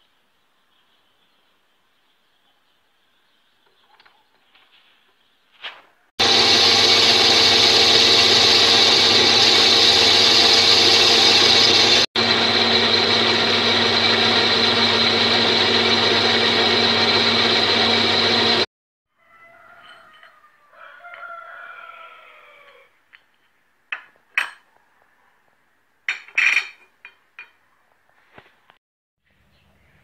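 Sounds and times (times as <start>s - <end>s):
metal lathe whine: 6.2s - 18.7s.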